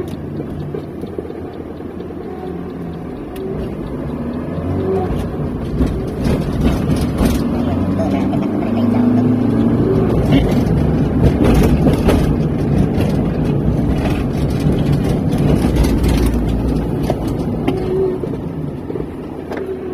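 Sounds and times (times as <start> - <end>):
car engine and tyre rumble: 0.0 - 19.9.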